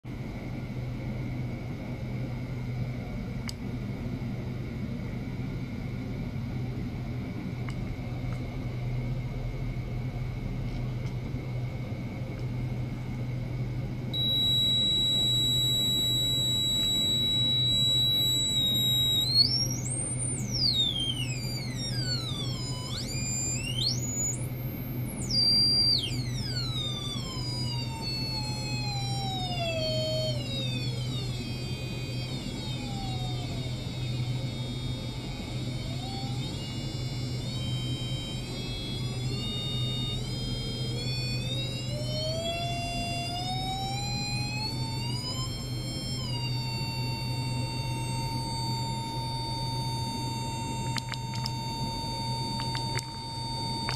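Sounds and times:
steady low hum: 0.1 - 53.9
steady high electronic tone: 14.1 - 53.9
electronic tones gliding in pitch: 14.2 - 53.9.

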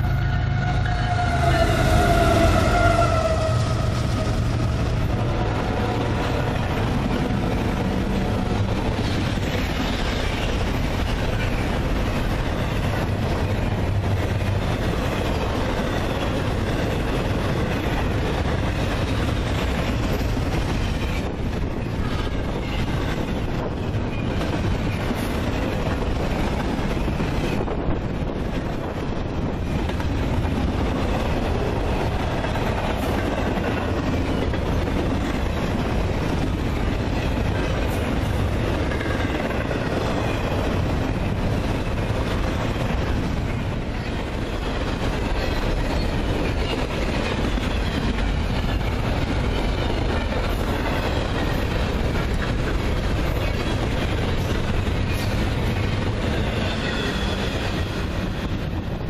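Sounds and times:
freight train wheels on rails: 0.0 - 59.0.

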